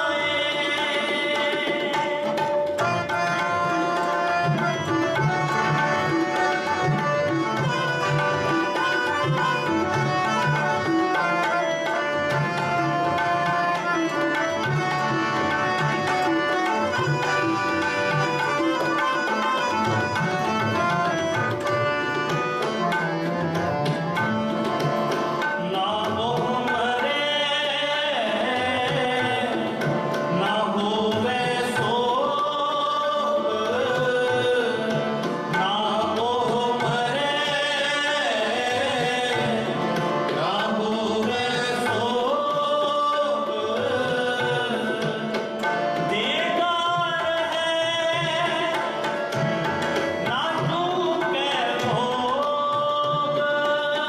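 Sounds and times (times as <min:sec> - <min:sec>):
harmoniums playing: 0:00.0 - 0:54.0
tabla strokes: 0:00.5 - 0:27.4, 0:33.4 - 0:54.0
men singing a hymn: 0:40.4 - 0:45.0.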